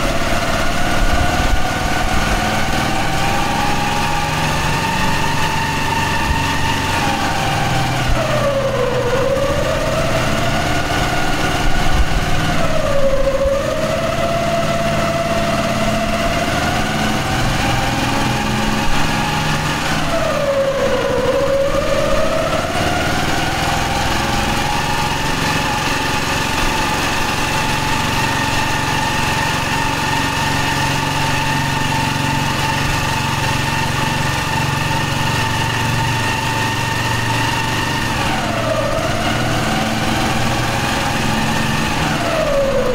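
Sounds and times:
vehicle engine whine: 0.0s - 42.9s.

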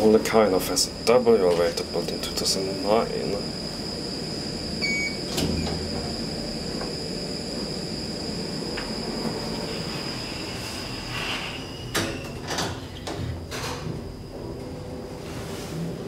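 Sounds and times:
elevator running with high whine: 0.0s - 16.0s
station background noise: 0.0s - 16.0s
elevator doors sliding open: 4.7s - 16.0s.

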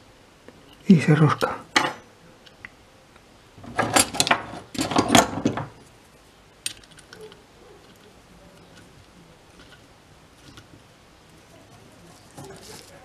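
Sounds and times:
metallic scraping and clicking: 6.6s - 10.8s, 11.4s - 13.0s.

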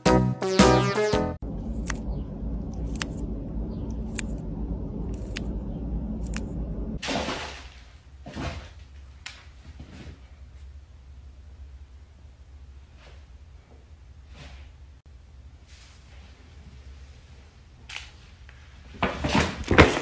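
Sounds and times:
low rumble: 1.4s - 7.0s.

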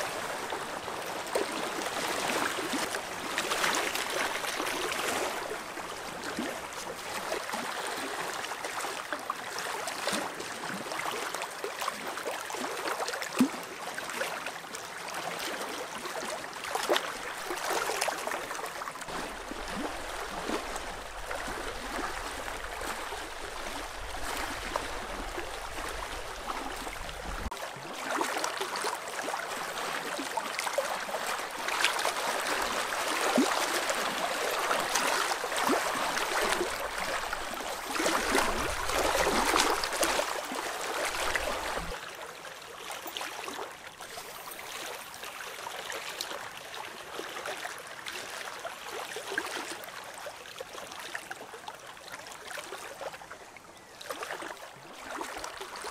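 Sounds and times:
waves lapping on rocks: 16.6s - 42.0s
wind rumbling on microphone: 19.1s - 27.5s.

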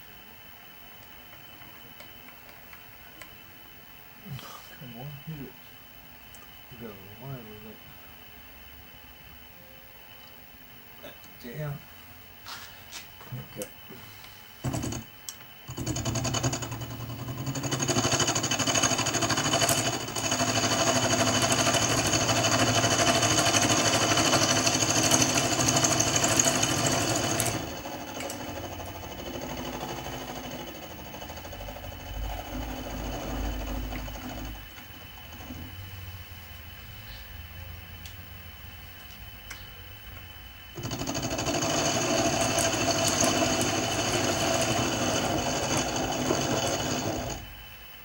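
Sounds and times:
milling machine cutting metal: 15.7s - 35.7s, 40.8s - 47.5s.

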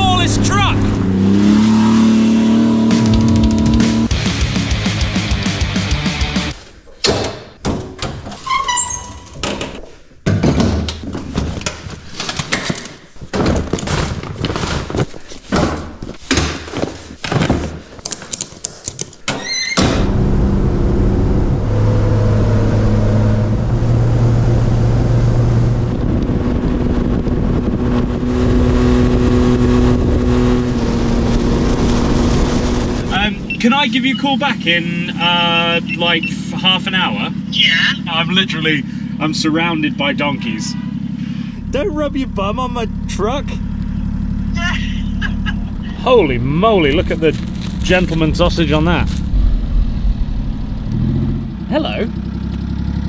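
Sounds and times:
short squeak: 8.4s - 9.4s
gear thudding and rattling: 9.3s - 19.3s, 46.8s - 50.2s
small truck engine running: 20.1s - 53.0s.

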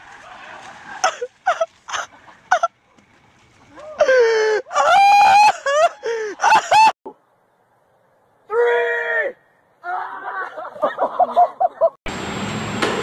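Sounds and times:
young man yelling: 8.5s - 10.1s.

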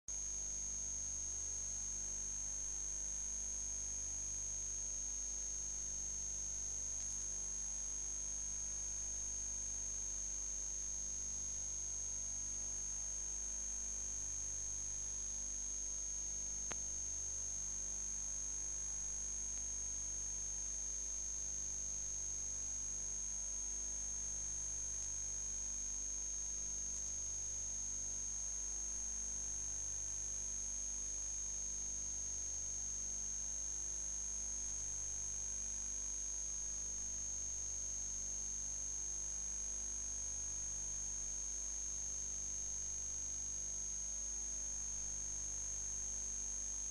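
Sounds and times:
low electrical hum: 0.1s - 33.6s, 46.6s - 46.9s
faint click: 7.0s - 7.2s, 16.6s - 16.9s.

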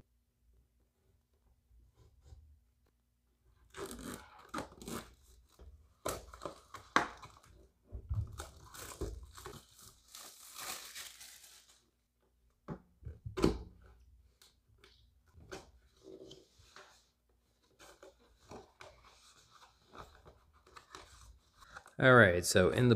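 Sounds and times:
packaging tearing and crinkling: 8.3s - 11.8s.

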